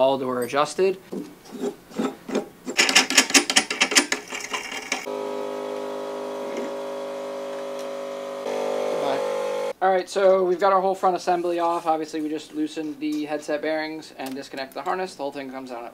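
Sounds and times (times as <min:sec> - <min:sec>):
metal parts scraping: 0:01.5 - 0:05.1
fast run of metal clicks: 0:02.8 - 0:05.1
steady buzzing hum: 0:05.1 - 0:09.7.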